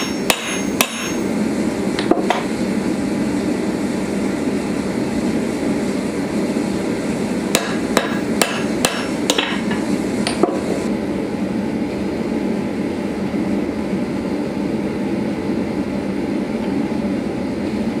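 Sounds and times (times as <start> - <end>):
hammer striking punch on anvil: 0.0 - 1.2, 7.5 - 10.6.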